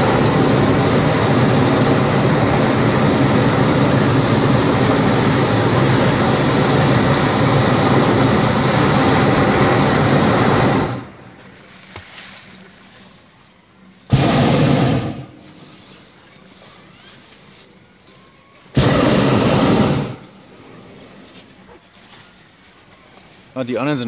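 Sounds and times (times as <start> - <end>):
propane burner blast: 0.0 - 11.5, 14.1 - 16.2, 18.7 - 21.2.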